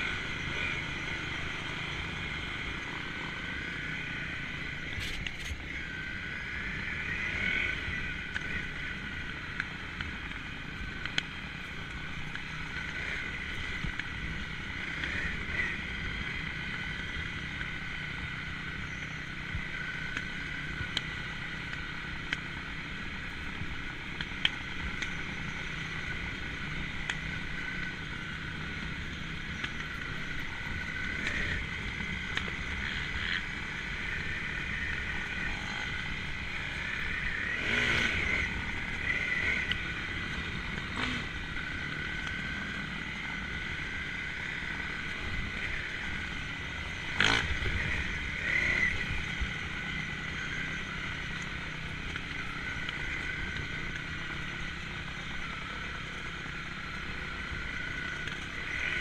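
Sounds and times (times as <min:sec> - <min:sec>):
trail bike engine running: 0:00.0 - 0:59.0.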